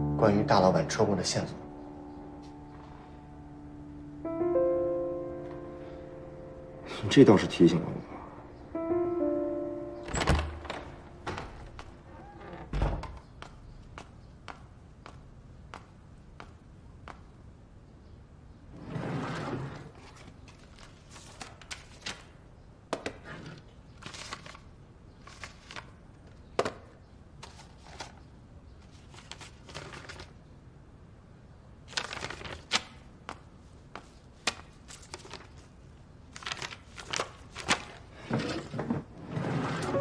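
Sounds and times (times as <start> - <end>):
paper rustling: 19.9 - 22.3, 23.5 - 26.0, 27.4 - 30.4, 31.9 - 38.8.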